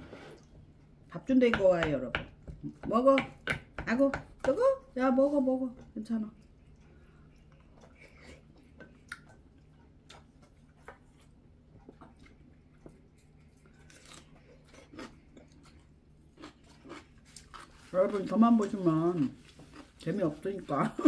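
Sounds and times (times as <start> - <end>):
person chewing and biting: 6.6 - 17.9.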